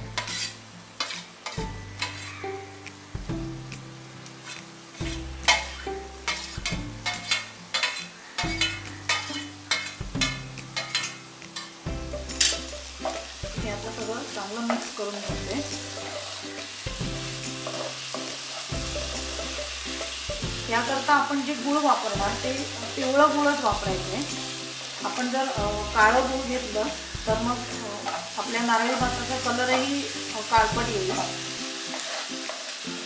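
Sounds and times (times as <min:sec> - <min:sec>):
syrup sizzling: 0:00.0 - 0:33.0
spatula tapping and scraping pan: 0:00.2 - 0:02.4, 0:04.4 - 0:13.4.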